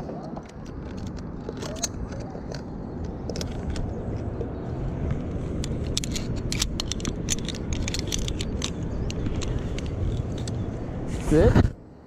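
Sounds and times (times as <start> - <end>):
low rumble: 0.0 - 12.0
metal carabiners clicking and clinking: 0.4 - 3.9, 5.6 - 10.7.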